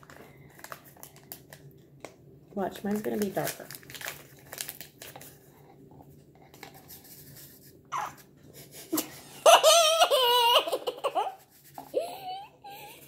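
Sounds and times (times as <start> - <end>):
high-pitched laughter: 8.8 - 13.0.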